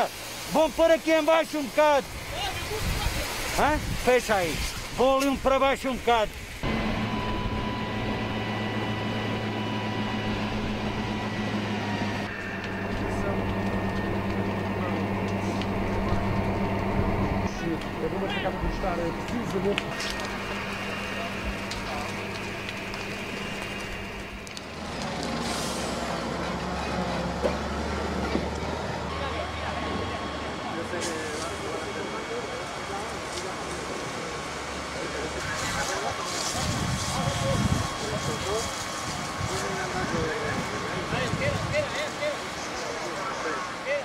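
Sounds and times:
fire hose spraying water: 0.0 - 44.0
pump humming: 6.5 - 41.1
heavy vehicle engine running: 6.5 - 43.8.

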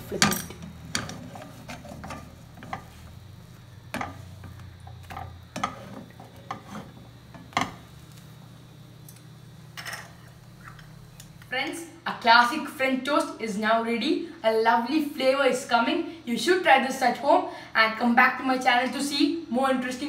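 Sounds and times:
steady low hum: 0.0 - 16.3
spatula scraping a frying pan: 0.5 - 7.8.

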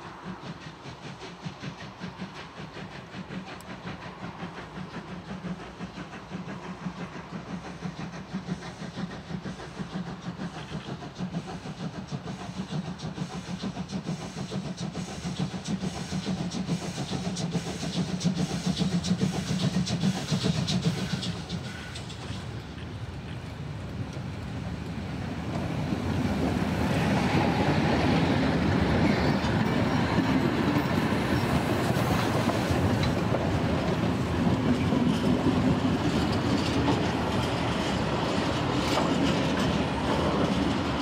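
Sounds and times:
steam locomotive chuffing: 0.0 - 41.0.

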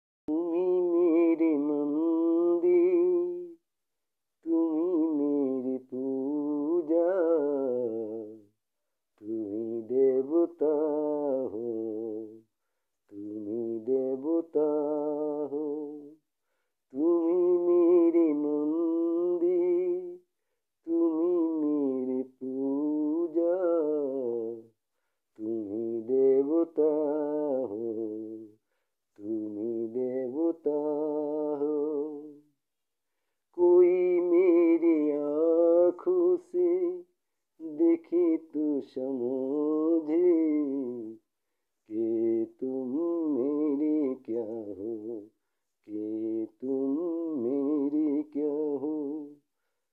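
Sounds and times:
man singing slow melody: 0.3 - 3.7, 4.4 - 32.6, 33.4 - 49.6.

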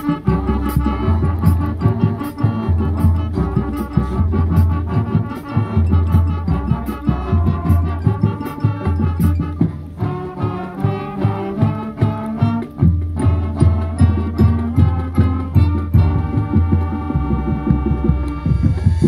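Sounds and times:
low bass line: 0.0 - 10.0, 11.6 - 19.0
marching band brass and keyboards: 0.0 - 19.0
steady drum strokes: 0.0 - 19.0.

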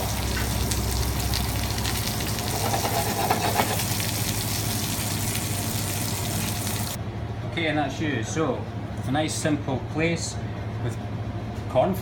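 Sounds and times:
fish sizzling in a pan: 0.0 - 7.0.

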